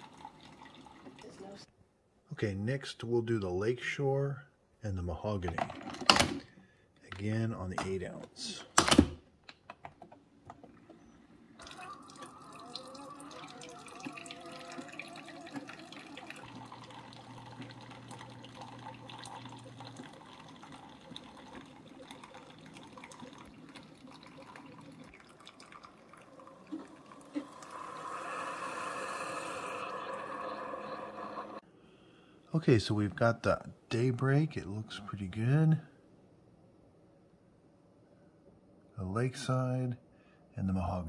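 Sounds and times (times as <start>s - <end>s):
coffee trickling into mugs: 0.0s - 1.6s, 10.5s - 31.6s
coffee maker pump running: 11.6s - 31.6s.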